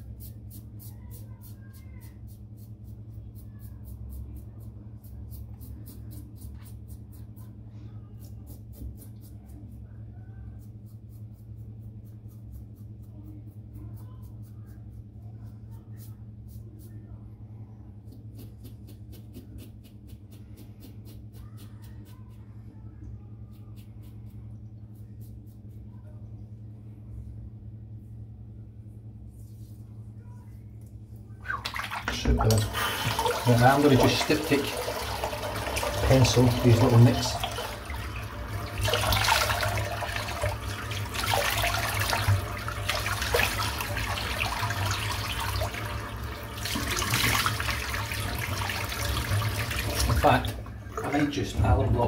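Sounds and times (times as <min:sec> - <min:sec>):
steady low hum: 0:00.0 - 0:52.0
tap water splashing into sink: 0:31.5 - 0:51.3.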